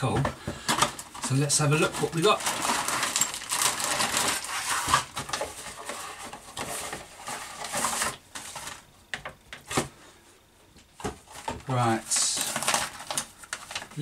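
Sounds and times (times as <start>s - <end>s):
plastic bag crinkling: 0.6s - 8.8s, 11.2s - 14.0s
cardboard box rustling: 0.9s - 8.8s.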